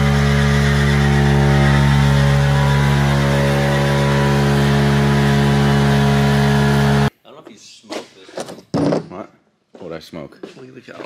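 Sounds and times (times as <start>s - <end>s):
engine revving loud: 0.0s - 7.1s.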